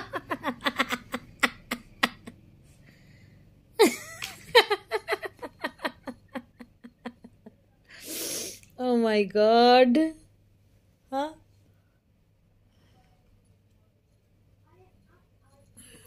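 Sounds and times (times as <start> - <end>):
woman laughing: 0.0 - 2.4, 3.8 - 7.6.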